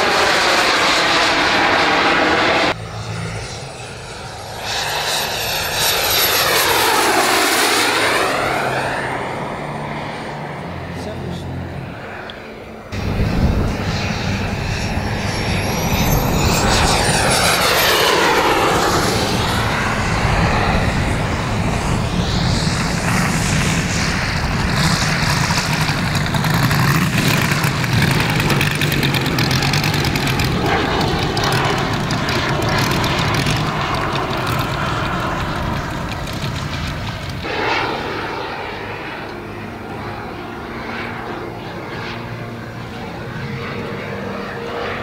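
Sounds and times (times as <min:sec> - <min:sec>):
model propeller engine running: 0:13.0 - 0:45.0.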